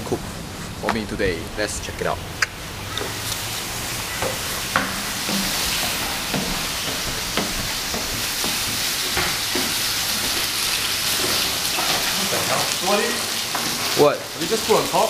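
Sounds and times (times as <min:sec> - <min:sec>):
food sizzling in a pan: 0:02.8 - 0:15.0
short knocks: 0:04.2 - 0:09.7.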